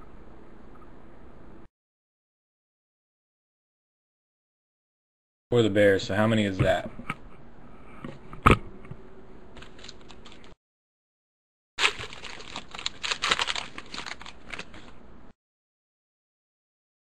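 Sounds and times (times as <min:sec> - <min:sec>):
cards clicking and rustling: 0:09.6 - 0:10.6, 0:11.8 - 0:15.0
foil wrapper crinkling: 0:09.6 - 0:10.6, 0:11.8 - 0:15.0.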